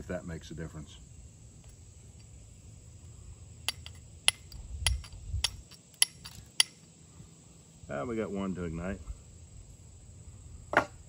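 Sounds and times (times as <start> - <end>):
steel striker clicking on flint: 3.7 - 6.8.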